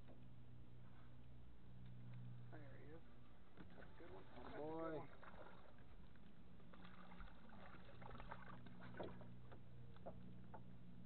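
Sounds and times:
faint low hum: 0.0s - 11.0s
small water splashes: 3.6s - 9.6s.

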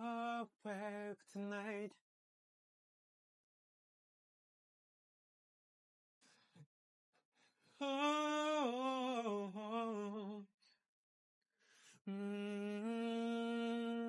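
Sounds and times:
person humming: 12.1s - 14.0s.

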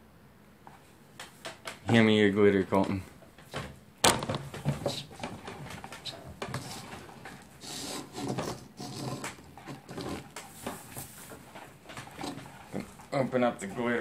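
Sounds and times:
small knocks: 0.7s - 7.5s
stick stirring slime in bowl: 4.8s - 14.0s.

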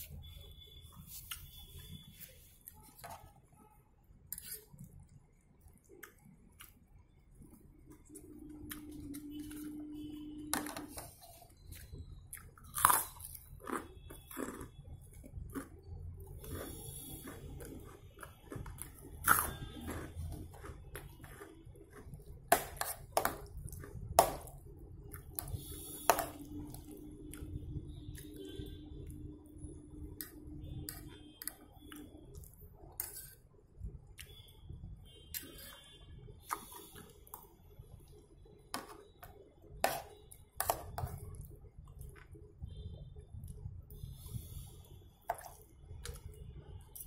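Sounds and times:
person chewing: 4.4s - 9.9s, 10.9s - 29.1s, 30.1s - 34.5s, 35.3s - 38.2s.

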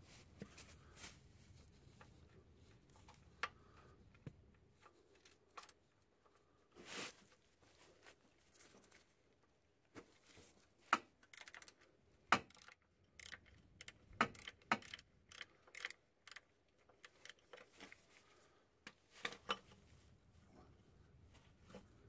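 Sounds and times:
ratchet clicking: 11.3s - 11.8s, 12.4s - 17.7s.

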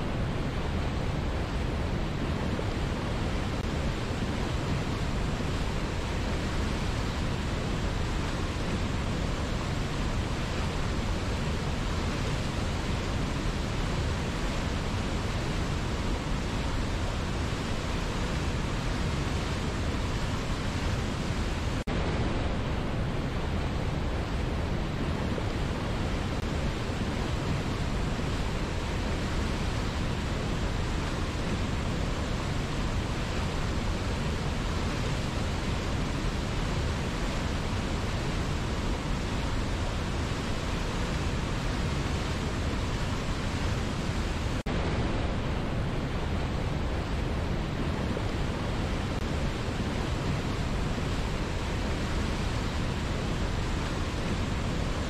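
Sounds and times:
waterfall and rapids roaring: 0.0s - 55.0s.

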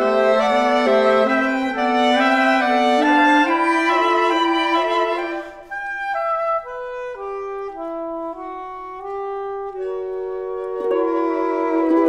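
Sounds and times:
saxophone quartet playing chords: 0.0s - 12.0s.

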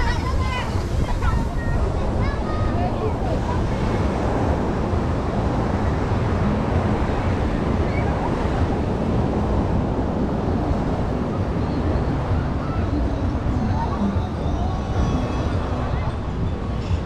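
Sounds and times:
surf washing on sand: 0.0s - 17.0s
wind rumbling on microphone: 0.0s - 17.0s.

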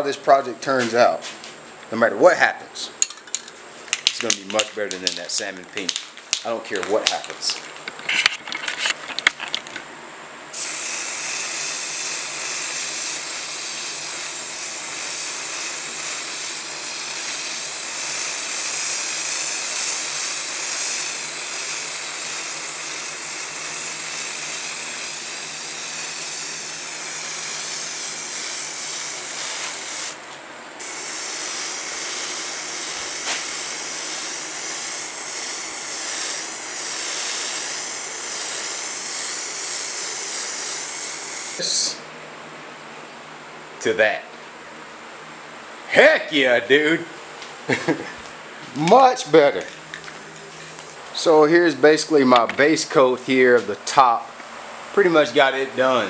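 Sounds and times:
spray paint can hissing: 10.6s - 30.2s, 30.8s - 41.6s.

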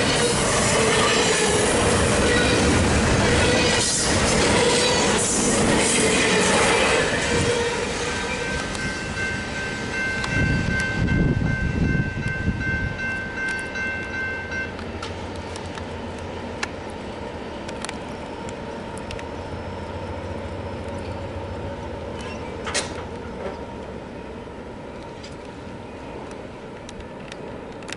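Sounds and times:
crossing warning bell: 0.0s - 15.6s
freight train rumbling and clattering: 0.0s - 24.0s, 24.9s - 27.9s
click: 17.7s - 19.3s, 26.2s - 27.9s.

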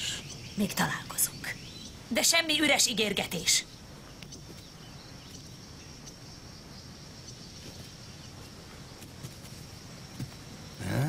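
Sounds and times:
insect trill: 0.0s - 11.0s
low background hiss: 0.0s - 11.0s.

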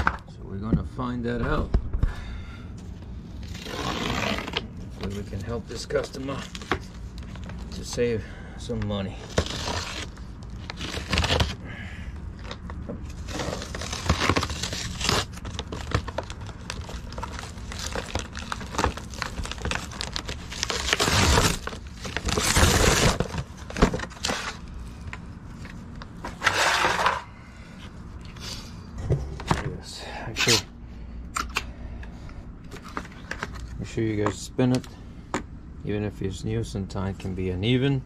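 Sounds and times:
plastic wrapping crinkling: 12.4s - 25.2s.

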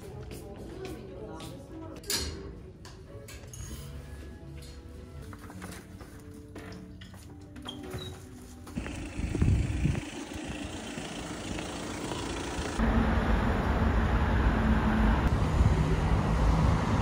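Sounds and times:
road traffic hiss and rumble: 8.8s - 17.0s.

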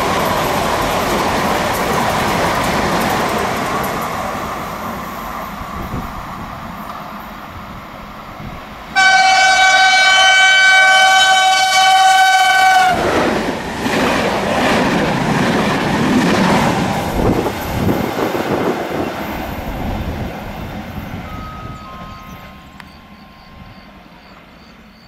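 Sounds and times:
train rumbling and wheel clatter: 0.0s - 25.0s
train horn blast: 8.9s - 13.1s.

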